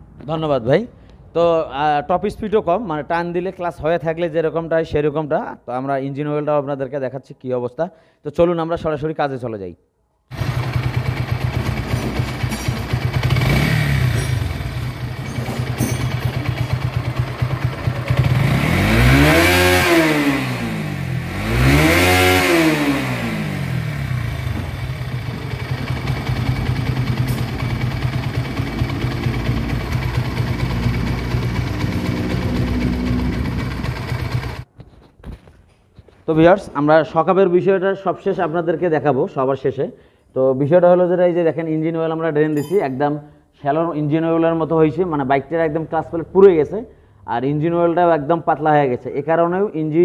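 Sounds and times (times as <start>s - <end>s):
motorcycle engine idling and revving: 10.3s - 34.7s.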